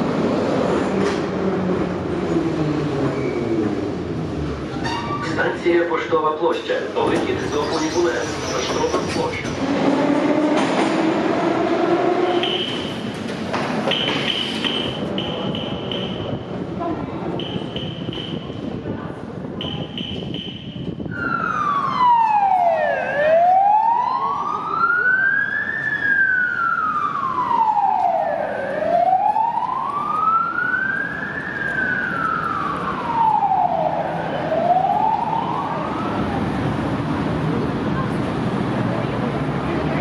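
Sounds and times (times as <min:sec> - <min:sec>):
short high beep: 0:19.6 - 0:20.9
emergency vehicle siren wailing: 0:19.6 - 0:37.0.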